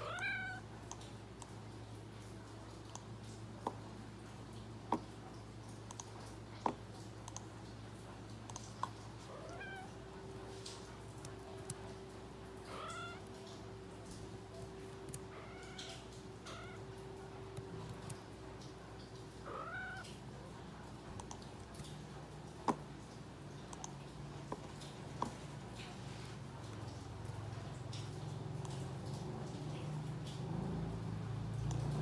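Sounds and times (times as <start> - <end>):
cat meowing: 0.0 - 0.6, 9.3 - 10.0, 12.6 - 13.4, 15.1 - 16.9, 19.4 - 20.1.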